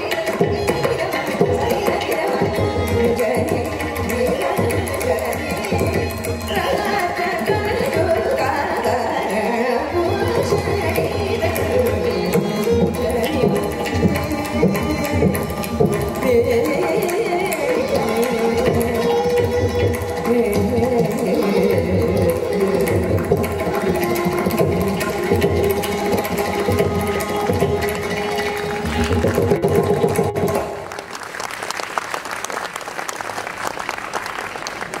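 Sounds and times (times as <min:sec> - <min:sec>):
voice and violin ensemble: 0:00.0 - 0:32.2
audience applause: 0:28.2 - 0:29.5, 0:30.6 - 0:35.0.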